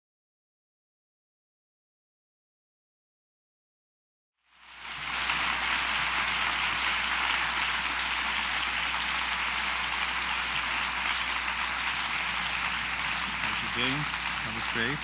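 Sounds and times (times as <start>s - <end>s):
audience applauding: 4.5s - 15.0s.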